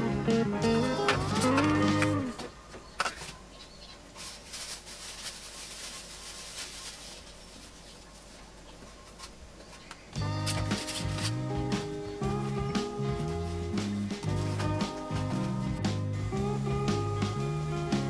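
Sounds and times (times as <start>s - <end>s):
guitar music: 0.0s - 2.4s, 10.2s - 18.0s.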